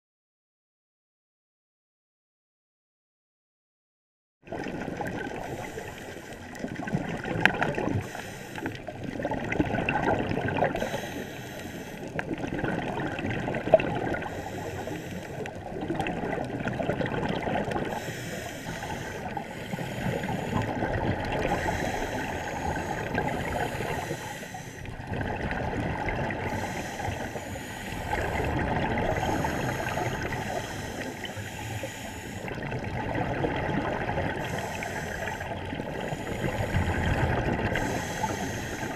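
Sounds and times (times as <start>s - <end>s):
exhaled bubbles rushing: 4.5s - 11.0s, 12.0s - 38.9s
scuba regulator inhale hiss: 5.4s - 6.5s, 8.0s - 8.8s, 10.8s - 12.2s, 14.2s - 15.4s, 17.8s - 20.8s, 21.4s - 24.9s, 26.5s - 28.4s, 29.1s - 32.5s, 34.4s - 38.9s.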